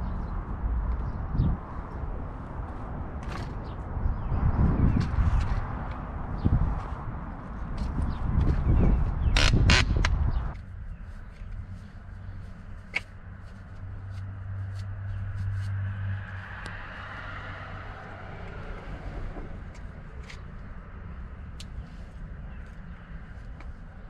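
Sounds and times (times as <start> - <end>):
vehicle humming: 0.0 - 24.0.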